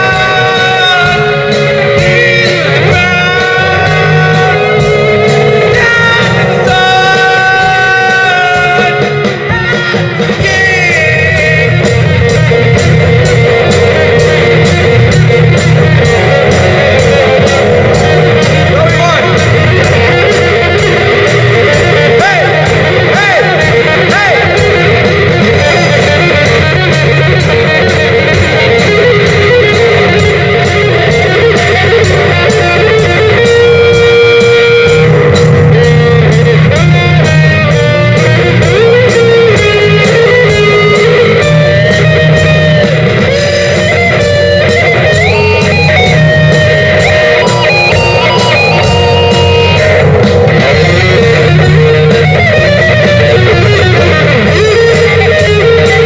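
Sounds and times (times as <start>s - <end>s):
distorted electric guitars: 0.0s - 56.0s
steady drum beat: 0.0s - 56.0s
melody line with pitch bends: 11.5s - 56.0s.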